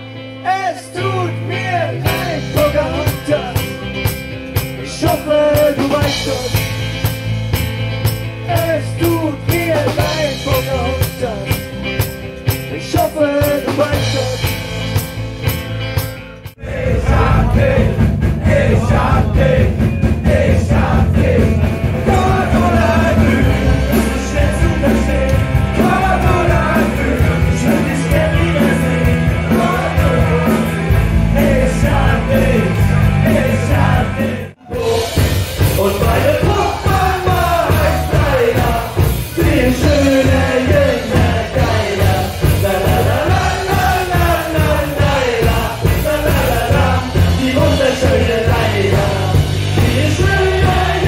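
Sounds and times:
live rock band playing: 0.0s - 51.0s
person singing: 16.6s - 51.0s.

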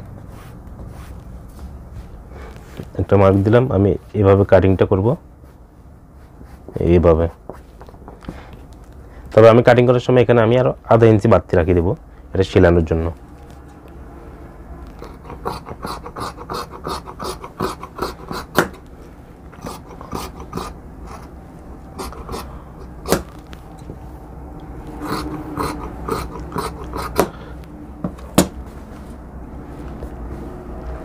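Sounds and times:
scissors snipping fabric: 14.9s - 18.9s, 22.0s - 23.6s, 25.0s - 27.4s.

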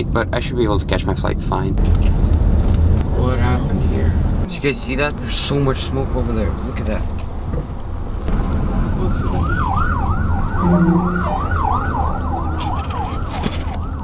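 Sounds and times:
emergency siren yelping: 8.8s - 14.0s.

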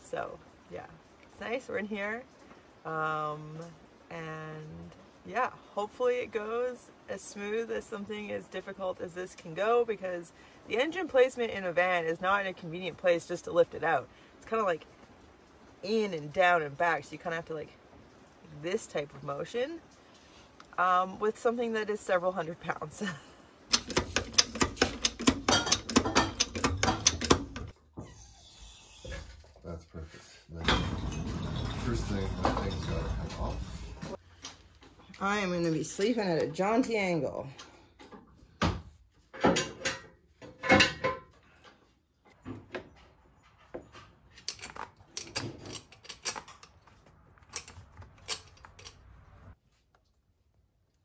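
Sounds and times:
metallic tool knocks and clicks: 23.7s - 27.7s.

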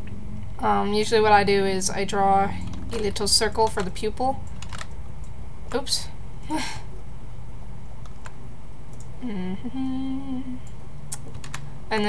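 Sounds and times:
person humming: 9.2s - 10.7s.

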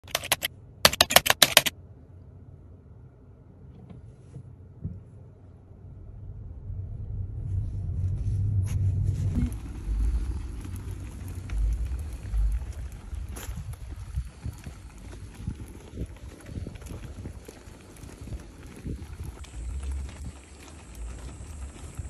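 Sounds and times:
keyboard typing clicks: 0.0s - 1.7s
car interior rumble: 3.2s - 22.0s
stroller wheels rolling over tiles: 8.7s - 22.0s.

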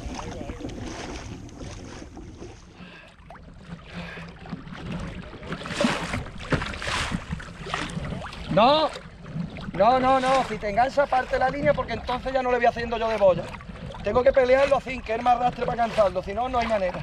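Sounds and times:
wind buffeting microphone: 0.0s - 2.8s
water washing along hull: 0.0s - 17.0s.

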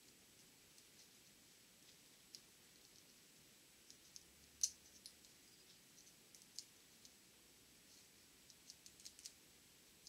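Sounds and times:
small metal clicks: 3.9s - 7.2s, 8.4s - 9.4s.

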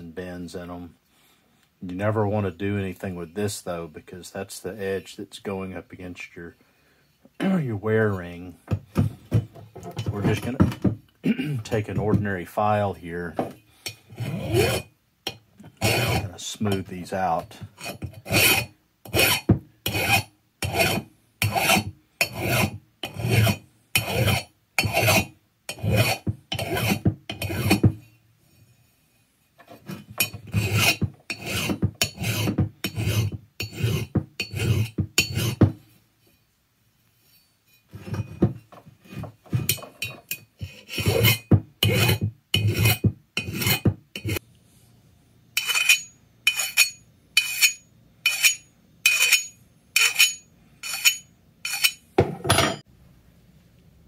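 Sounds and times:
hand file rasping on metal: 13.8s - 14.9s, 15.7s - 16.8s, 17.8s - 27.9s, 29.6s - 35.7s, 39.0s - 44.4s, 45.6s - 52.0s.

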